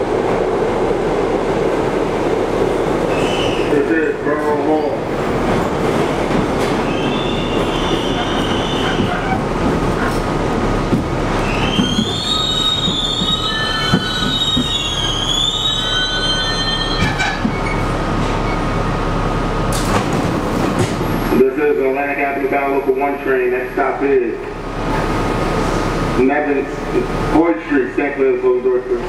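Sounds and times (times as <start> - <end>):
train wheels rumbling on track: 0.0 - 29.0
wheel squeals: 3.1 - 3.7, 6.8 - 10.2, 11.4 - 18.8
train clanks: 4.2 - 18.5, 19.6 - 21.4.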